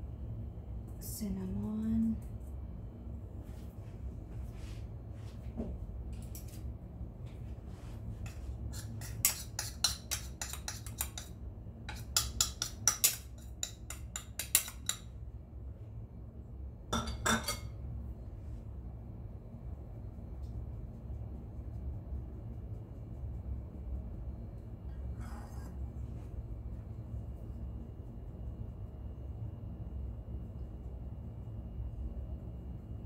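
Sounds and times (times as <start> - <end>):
steady low hum: 0.0 - 33.0
ceramic bowl clinking on sieve: 17.0 - 17.7.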